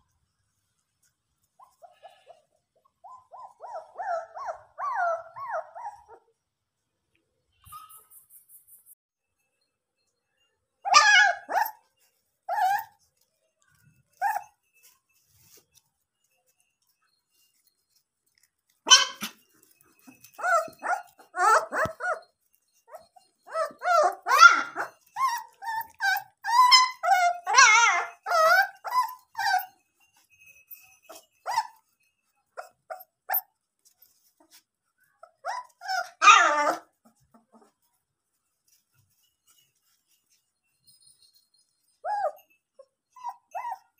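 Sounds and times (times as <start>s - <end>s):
puppies yapping and whining: 1.5s - 6.4s, 10.8s - 15.6s, 18.7s - 38.0s, 38.7s - 43.9s.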